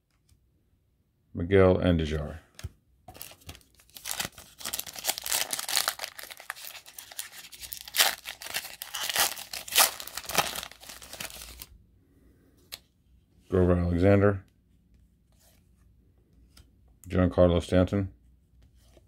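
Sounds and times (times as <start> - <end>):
foil crinkling and crackling: 3.2 - 11.7
foil wrapper tearing and crinkling: 3.2 - 11.7.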